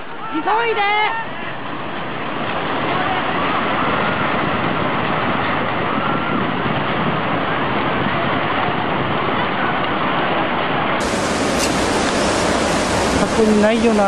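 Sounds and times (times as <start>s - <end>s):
floodwater rushing: 11.0s - 14.0s.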